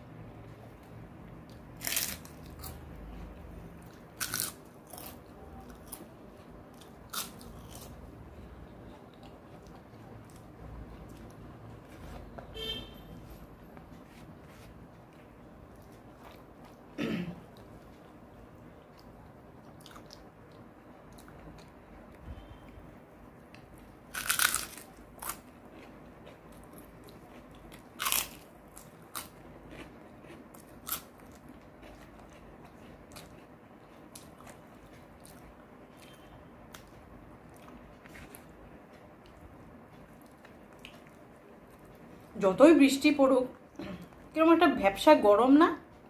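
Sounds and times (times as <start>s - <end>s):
soft chewing: 0.4s - 12.6s, 13.2s - 22.8s, 23.4s - 42.4s
crunching crisp food: 1.5s - 3.1s, 3.8s - 6.1s, 6.7s - 8.1s, 23.5s - 35.4s.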